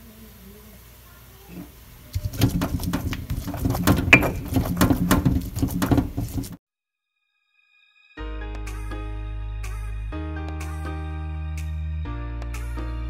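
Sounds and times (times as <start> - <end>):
stone pestle grinding seeds: 2.1 - 6.6.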